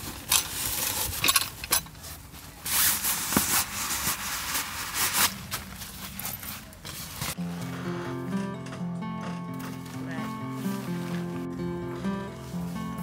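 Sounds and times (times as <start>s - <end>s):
stiff sheet rustling and crinkling: 1.9s - 8.0s, 9.5s - 13.0s.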